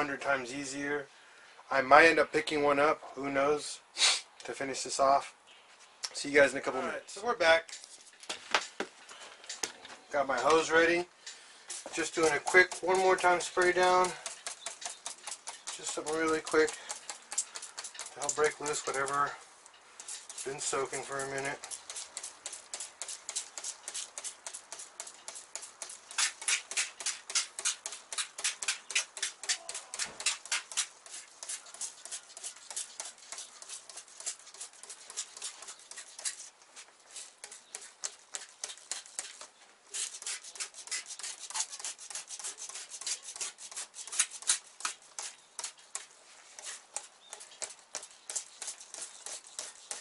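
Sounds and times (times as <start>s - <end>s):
spray bottle squirts: 25.5s - 36.4s.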